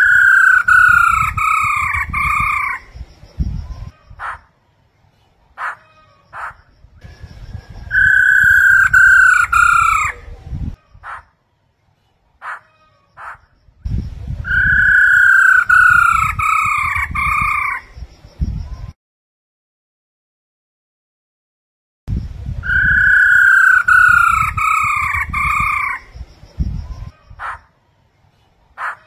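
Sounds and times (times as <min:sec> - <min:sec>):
whistled bird notes: 0:00.0 - 0:04.5, 0:05.1 - 0:11.4, 0:12.0 - 0:19.0, 0:22.6 - 0:27.7
birds calling: 0:00.0 - 0:19.0, 0:22.6 - 0:29.0.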